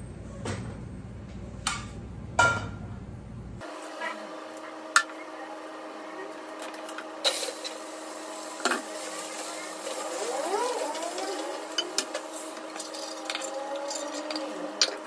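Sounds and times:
utensils knocking and clinking: 11.0 - 15.0.

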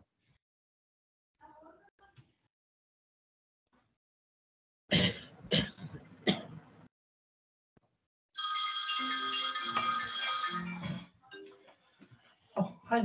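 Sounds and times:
person coughing: 4.9 - 6.5
phone ringtone chiming melody: 8.4 - 11.5.

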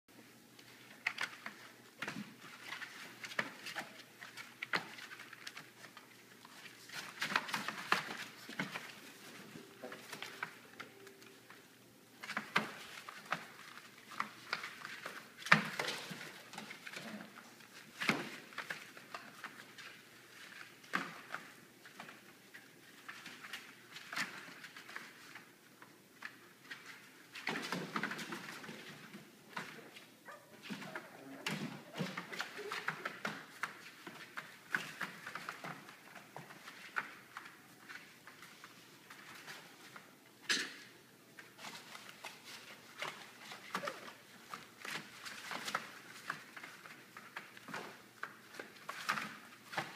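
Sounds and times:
puppy paws scratching and pattering: 0.5 - 40.4, 41.3 - 49.9.

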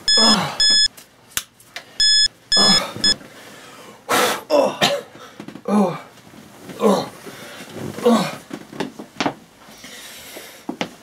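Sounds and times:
pager beeps: 0.0 - 0.9, 2.0 - 3.2.

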